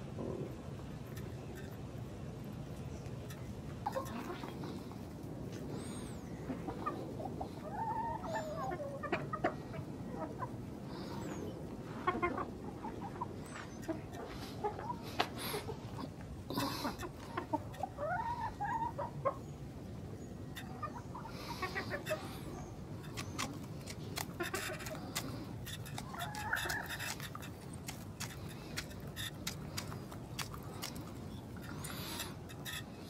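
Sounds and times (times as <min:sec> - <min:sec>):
chickens clucking: 0:03.1 - 0:33.0.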